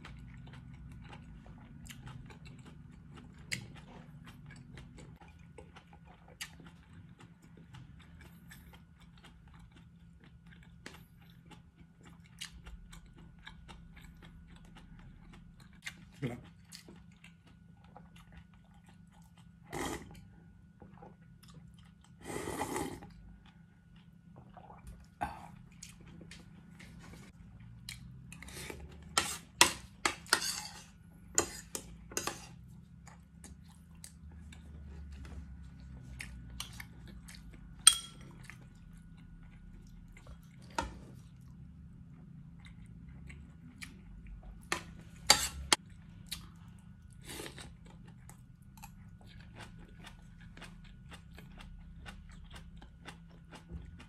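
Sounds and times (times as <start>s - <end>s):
chewing: 0.0s - 54.0s
cutlery scraping on ceramic plate: 29.1s - 32.6s, 37.9s - 38.2s, 45.2s - 45.8s
metal clink on plate: 37.9s - 38.2s.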